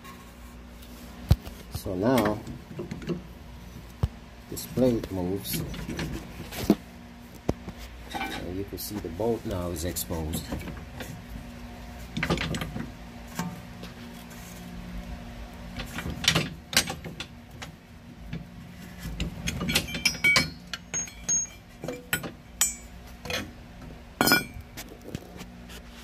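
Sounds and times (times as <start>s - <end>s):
low steady hum: 0.0s - 26.0s
metal bolts clinking: 19.4s - 23.5s, 24.2s - 24.6s.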